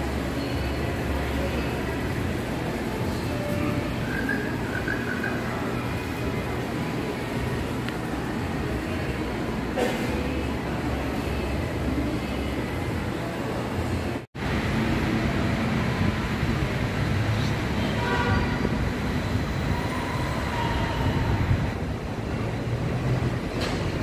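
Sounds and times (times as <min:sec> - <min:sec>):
faint train whine: 0:00.0 - 0:24.0
train low rumble: 0:14.4 - 0:24.0.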